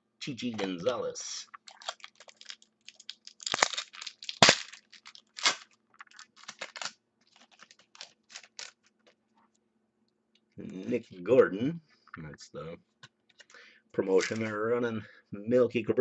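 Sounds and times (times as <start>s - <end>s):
foil wrapper tearing and crumpling: 1.6s - 9.1s.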